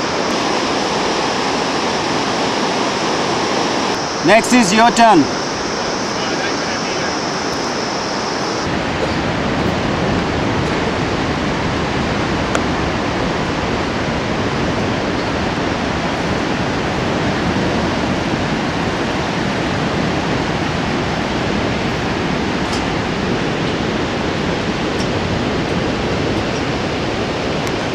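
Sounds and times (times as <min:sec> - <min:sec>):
whitewater rapids rushing: 0:00.0 - 0:27.9.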